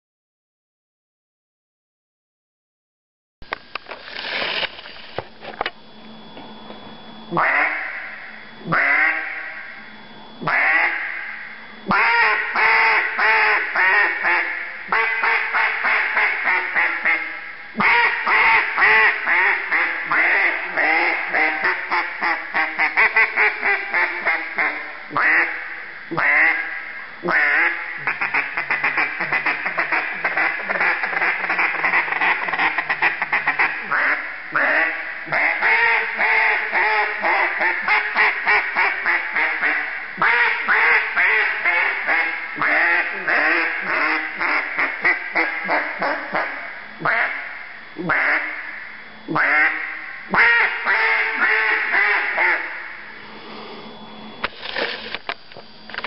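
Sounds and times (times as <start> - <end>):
duck call quacking: 7.3 - 8.1, 8.7 - 9.6, 10.4 - 11.3, 11.9 - 53.0.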